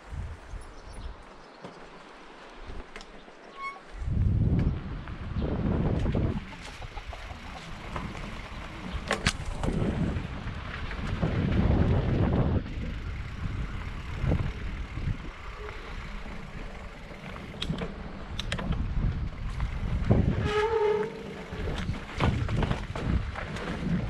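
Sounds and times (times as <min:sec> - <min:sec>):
wind buffeting microphone: 0:00.0 - 0:01.3, 0:03.9 - 0:24.0
tyres rumbling over rough ground: 0:01.4 - 0:24.0
bike clicks and rattles: 0:05.9 - 0:24.0.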